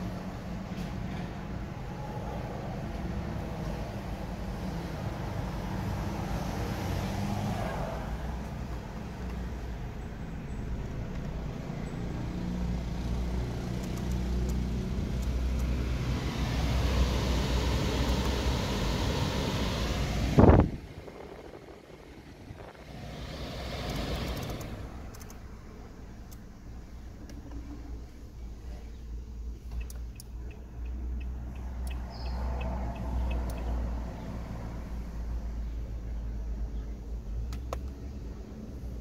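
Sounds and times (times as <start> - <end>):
car engine hum inside cabin: 0.0 - 39.0
climate control fan rushing: 12.1 - 26.5.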